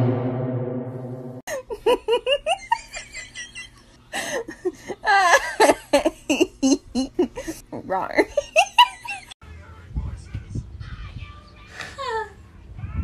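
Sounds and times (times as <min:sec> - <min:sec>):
low droning: 0:00.0 - 0:01.4
high-pitched giggling: 0:04.5 - 0:07.6.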